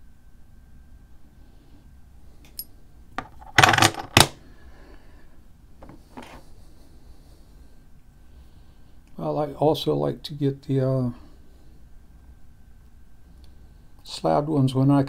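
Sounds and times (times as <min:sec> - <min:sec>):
coins clattering: 0:03.2 - 0:04.3.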